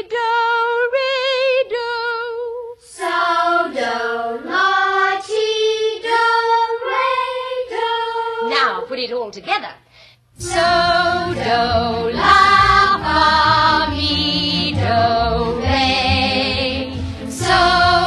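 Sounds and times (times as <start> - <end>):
children singing together: 2.9 - 8.5, 10.4 - 18.0
woman singing with vibrato: 10.4 - 18.0.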